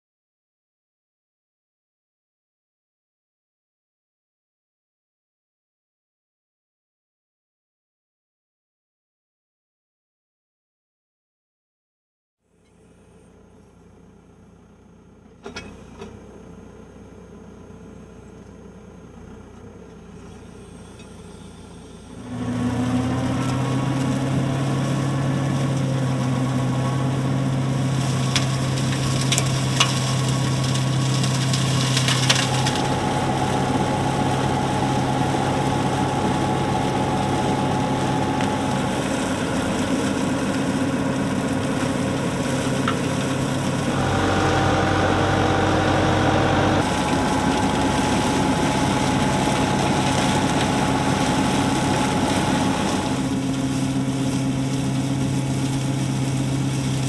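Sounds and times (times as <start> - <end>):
tractor engine with mower: 12.5 - 57.0.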